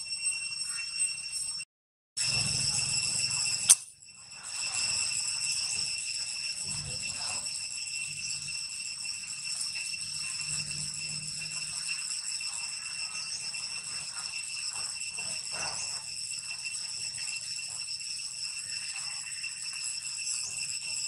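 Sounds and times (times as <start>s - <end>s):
high-pitched insect drone: 0.0s - 21.0s
sharp click: 3.7s - 3.9s.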